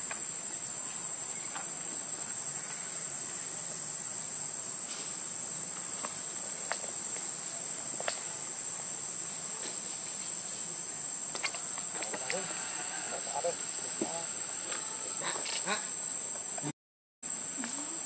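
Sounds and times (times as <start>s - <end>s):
high-pitched insect chorus: 0.0s - 18.0s.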